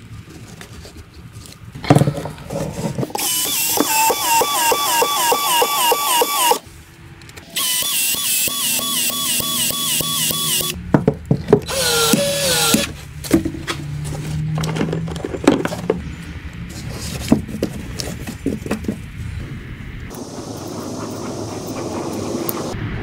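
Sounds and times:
expansion tool running in pulses: 3.2s - 6.6s.

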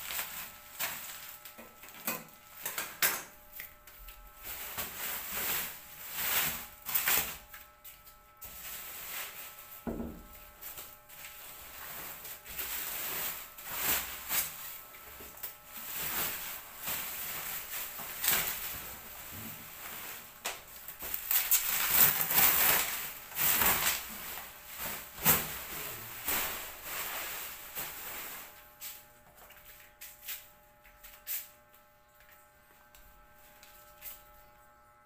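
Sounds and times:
plastic wrap crinkling: 0.0s - 3.0s, 10.5s - 28.6s.

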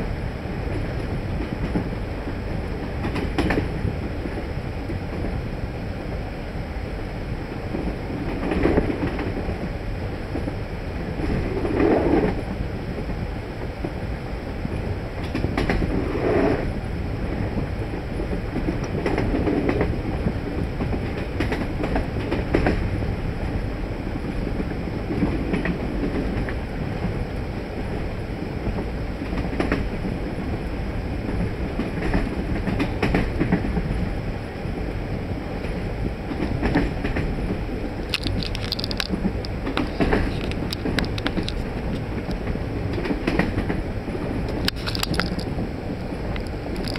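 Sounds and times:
train rumbling: 0.0s - 46.9s
wheel clicks over rails: 38.0s - 41.6s.

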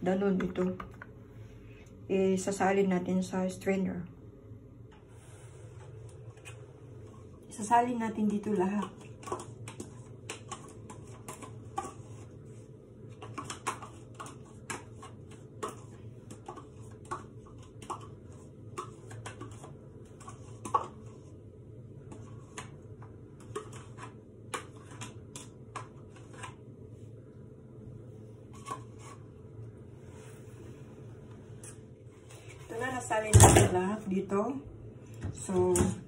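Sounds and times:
low steady hum: 0.0s - 36.0s
spoon scraping and tapping pots: 8.1s - 12.4s, 13.1s - 21.2s.

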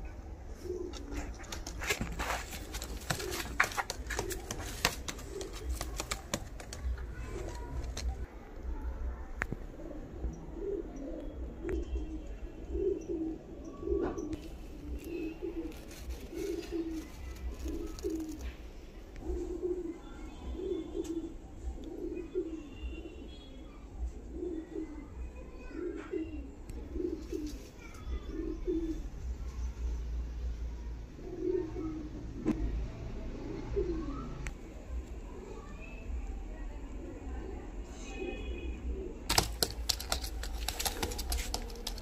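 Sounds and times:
pigeons cooing: 0.0s - 8.3s, 9.6s - 29.2s, 31.2s - 32.8s, 33.4s - 34.5s, 38.9s - 42.0s.

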